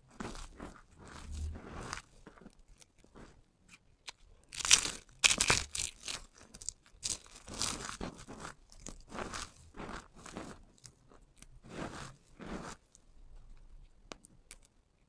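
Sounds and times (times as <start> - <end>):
soap cubes crunching: 4.5 - 11.5.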